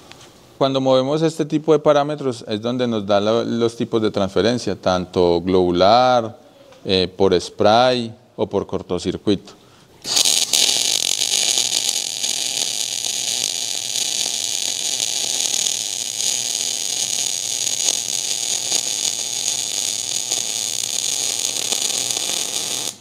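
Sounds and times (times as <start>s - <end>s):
welding arc hissing: 10.0s - 23.0s.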